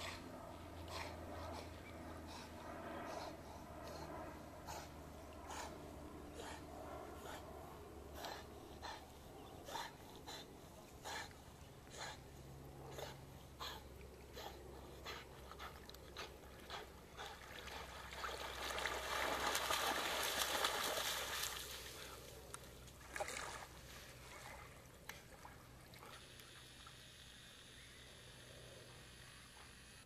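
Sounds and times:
dog splashing through water: 0:17.4 - 0:22.2.

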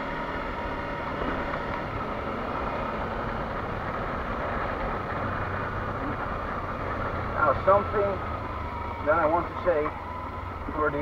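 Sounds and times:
motorcycle engine running: 0:00.0 - 0:11.0
road noise: 0:00.0 - 0:11.0.

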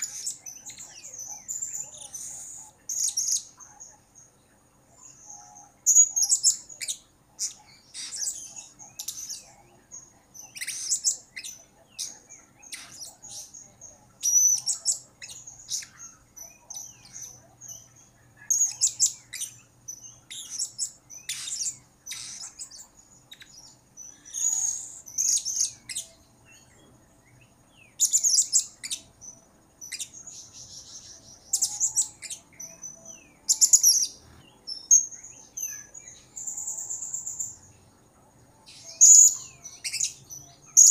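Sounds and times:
parrot shrill high chirps: 0:20.3 - 0:22.6.

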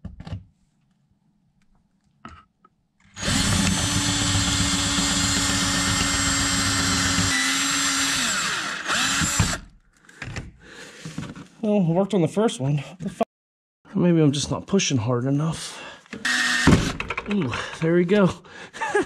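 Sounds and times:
power drill drilling metal: 0:03.1 - 0:09.7, 0:16.2 - 0:17.1.

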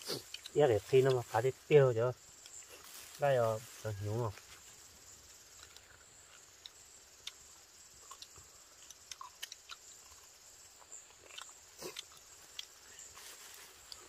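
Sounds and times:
high-pitched insect drone: 0:00.0 - 0:14.0
person chewing: 0:00.1 - 0:00.6, 0:05.6 - 0:12.8.

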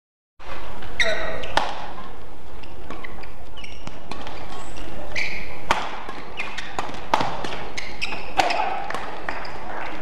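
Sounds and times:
racket hitting shuttlecock: 0:00.4 - 0:10.0
shoes squeaking on court floor: 0:00.5 - 0:10.0.

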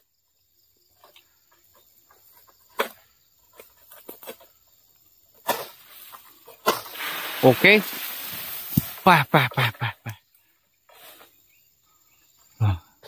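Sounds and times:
sickle cracking stalks: 0:05.4 - 0:09.7
leaves rustling: 0:05.5 - 0:09.8.

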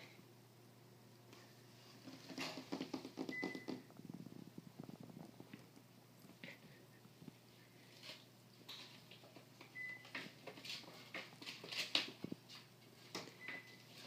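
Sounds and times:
kitten paws scuffling on tile: 0:06.4 - 0:14.0.

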